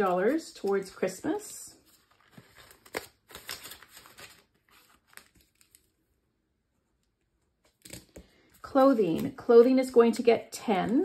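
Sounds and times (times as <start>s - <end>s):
banknotes and envelopes rustling: 0.0s - 6.0s.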